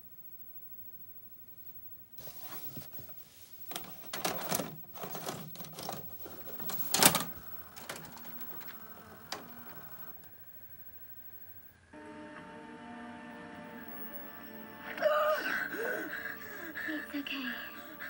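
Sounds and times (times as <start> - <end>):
cassette being handled: 2.2 - 10.4
tape transport whirring: 2.2 - 18.0
tape deck clicking and clunking: 3.7 - 10.3.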